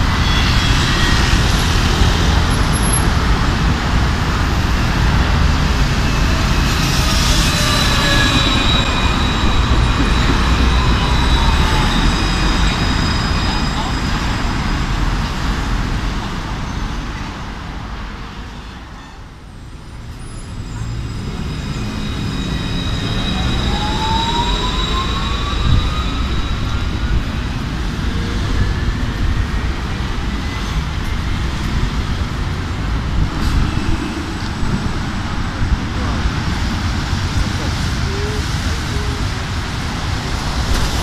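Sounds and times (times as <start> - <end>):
street traffic rumble: 0.0 - 41.0
tram motor whine rising: 21.1 - 29.6.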